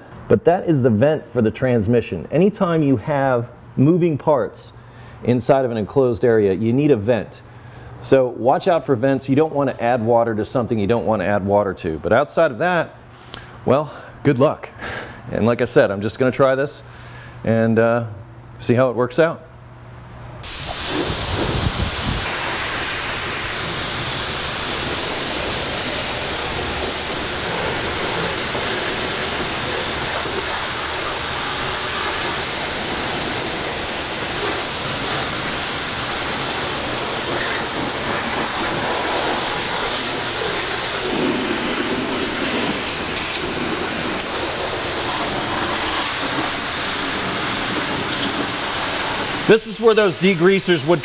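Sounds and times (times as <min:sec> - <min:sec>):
high-pressure water spray hissing: 0:20.4 - 0:51.0.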